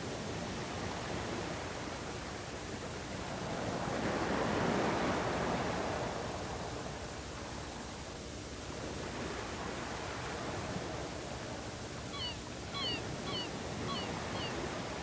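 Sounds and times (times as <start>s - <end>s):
tape recording hiss: 6.0s - 15.0s.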